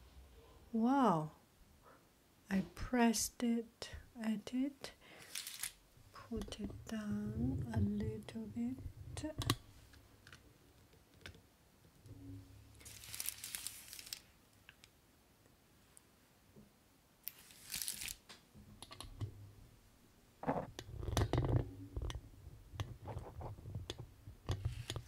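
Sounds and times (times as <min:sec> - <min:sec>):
plastic mailer crinkling: 0:05.2 - 0:05.8, 0:12.8 - 0:14.3.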